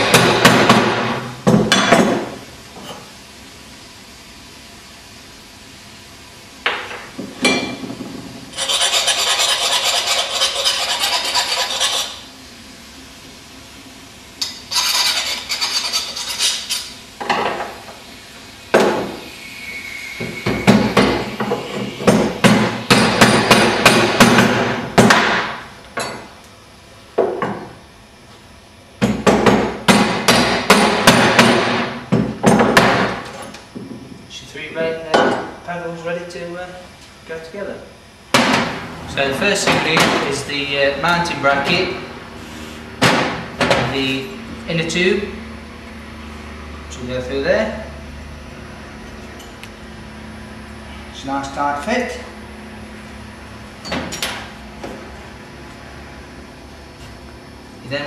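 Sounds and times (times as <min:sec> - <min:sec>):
steady rasping: 0:08.5 - 0:12.2.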